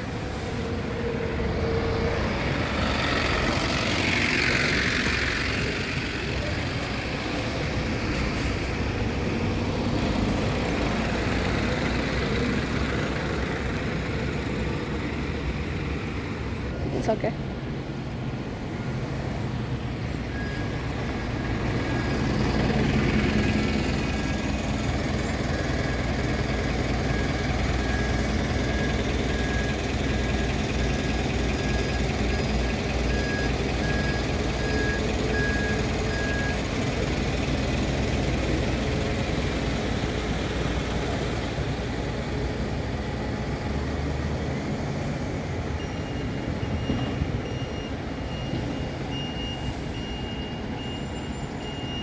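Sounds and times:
bus engine running: 0.0 - 52.0
reversing alarm beeping: 19.0 - 36.9, 45.7 - 52.0.

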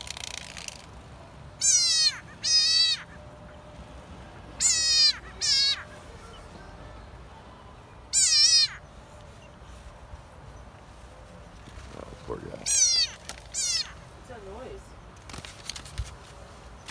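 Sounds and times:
frog distress screams: 1.6 - 3.2, 4.6 - 5.8, 8.1 - 8.8, 12.6 - 14.0.

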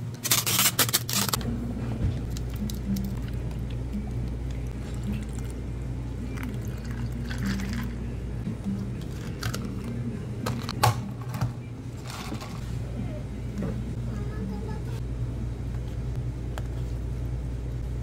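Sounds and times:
liquid pouring over ice: 6.4 - 8.0.

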